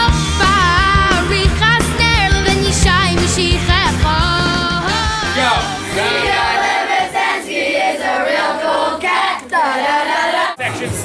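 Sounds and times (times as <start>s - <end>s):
music: 0.0s - 7.4s
people singing together: 0.0s - 11.0s.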